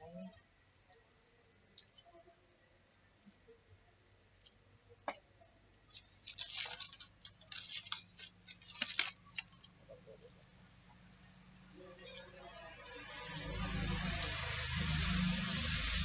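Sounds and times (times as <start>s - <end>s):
dry sticks crackling in fire: 1.6s - 2.1s, 4.2s - 16.0s.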